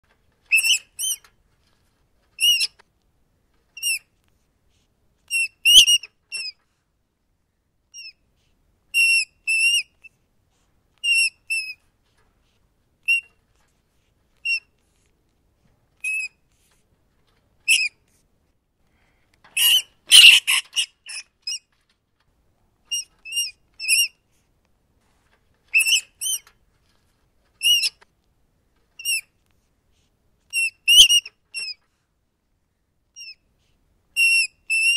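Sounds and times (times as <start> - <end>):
rat squeaking: 0.4 - 2.8, 3.7 - 4.1, 5.3 - 6.6, 7.9 - 8.2, 8.9 - 10.2, 11.0 - 11.8, 13.0 - 13.6, 14.4 - 14.8, 16.0 - 16.7, 17.6 - 18.0, 19.6 - 21.9, 22.8 - 24.2, 25.6 - 26.8, 27.5 - 28.0, 29.0 - 29.3, 30.5 - 31.8, 33.2 - 33.5, 34.2 - 34.9.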